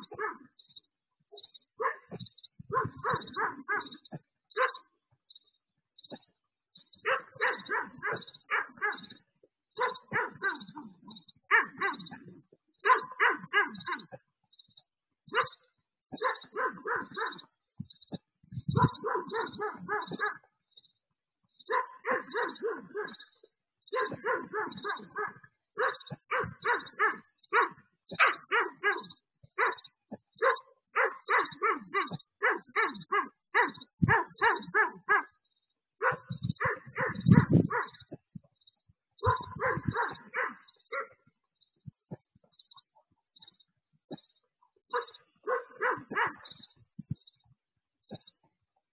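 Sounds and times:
dog barking: 0.0 - 0.6, 1.4 - 4.9, 7.0 - 14.2, 15.3 - 20.5, 21.6 - 38.2, 39.2 - 41.4, 44.9 - 47.3, 48.1 - 48.4.

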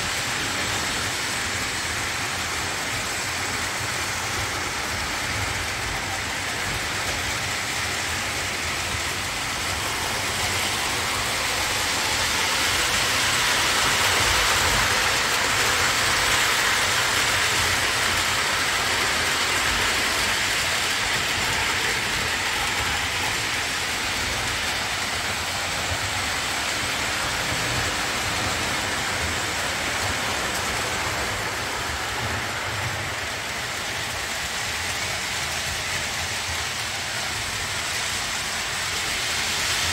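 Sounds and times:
toy train wheels and motors rumbling: 0.0 - 39.9.

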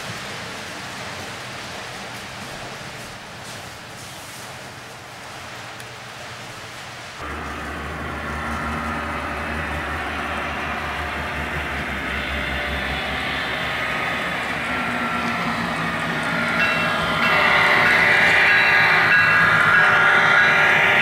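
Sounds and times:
steady hiss: 0.0 - 21.0
model locomotive hum and whine: 7.2 - 21.0.

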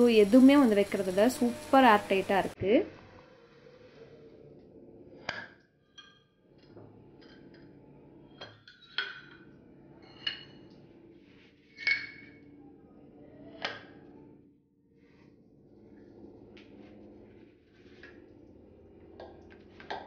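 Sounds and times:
glass jars clinking: 8.4 - 10.7, 11.7 - 12.4.

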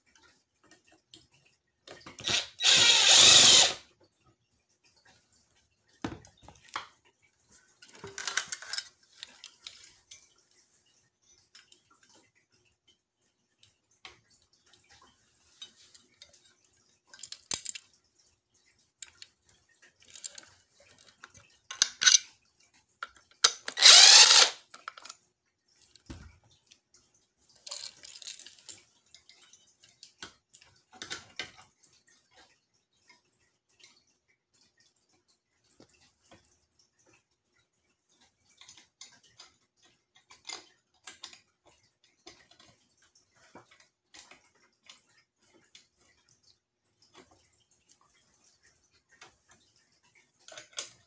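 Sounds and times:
loud handling noise: 23.5 - 24.6
hardware clinking and rattling: 27.7 - 28.8.

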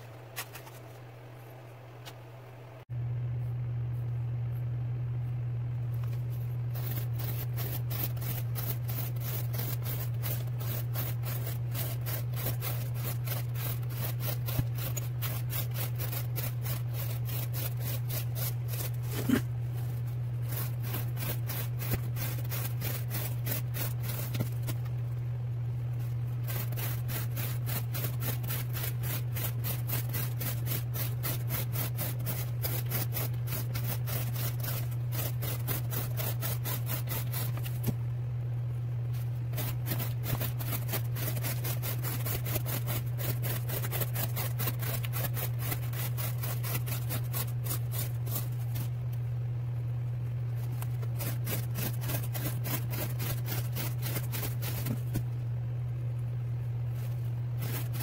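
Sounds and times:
steady low hum: 0.0 - 58.0
knife slicing cardboard: 6.7 - 19.5, 20.4 - 24.8, 26.4 - 38.0, 39.5 - 48.9, 50.8 - 55.3, 57.6 - 58.0.

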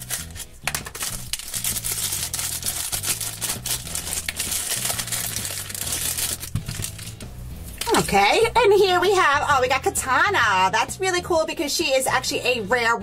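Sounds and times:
plastic wrapper crinkling: 0.0 - 8.0.

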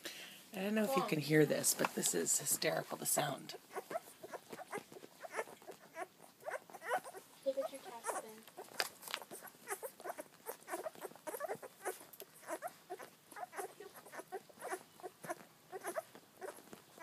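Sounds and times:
puppies sucking and smacking: 2.7 - 17.0
puppy squeaks and grunts: 3.6 - 17.0.

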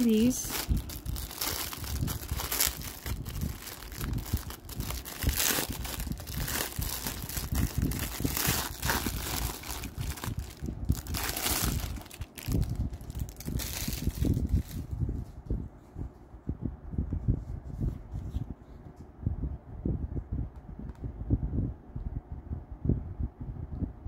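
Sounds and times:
plastic wrap crinkling: 0.0 - 14.9.

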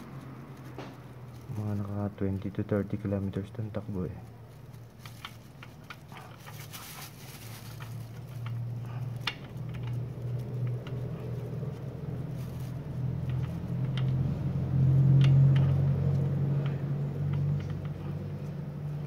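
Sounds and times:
low engine-like hum: 0.0 - 19.0.

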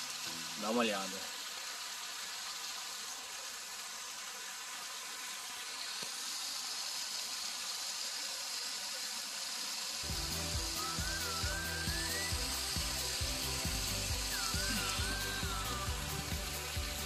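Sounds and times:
water spraying from fountain jets: 0.0 - 17.0
music with a beat: 10.0 - 17.0.

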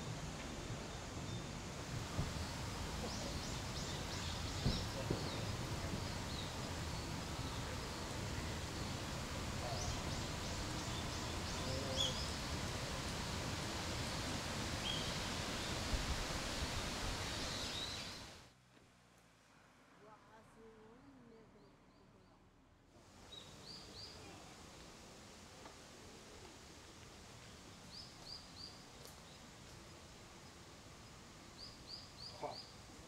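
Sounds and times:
steady rustling hiss: 0.0 - 21.0, 22.9 - 33.0
birds chirping: 2.2 - 18.4.

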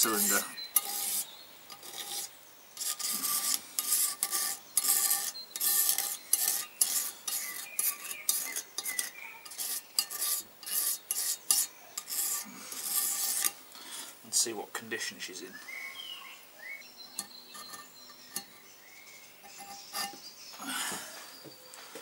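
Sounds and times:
hand rubbing metal cylinder bore: 0.0 - 13.6, 17.1 - 18.6, 19.4 - 20.2.

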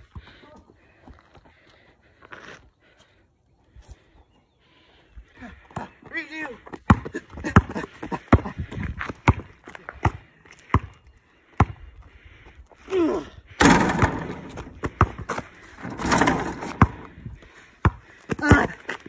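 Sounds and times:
basketball bouncing on asphalt: 5.7 - 12.0, 13.6 - 19.0.

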